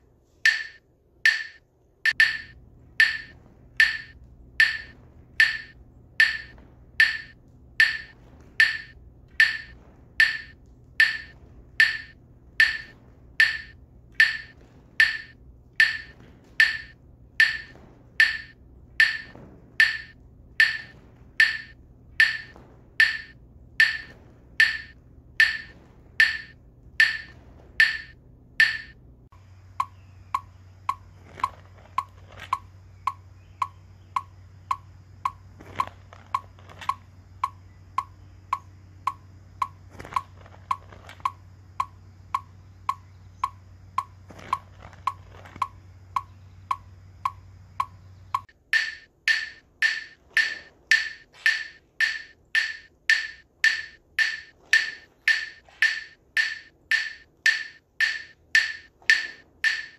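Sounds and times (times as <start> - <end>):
low steady hum: 0.0 - 59.9
fainter lower-pitched click: 0.5 - 29.0
metronome clicking: 0.5 - 29.0, 29.8 - 31.1, 32.0 - 35.4, 36.4 - 44.2, 45.1 - 59.9.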